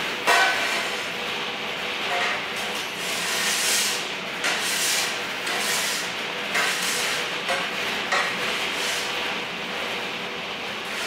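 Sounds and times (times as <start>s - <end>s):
scraping on metal parts: 3.0s - 9.1s.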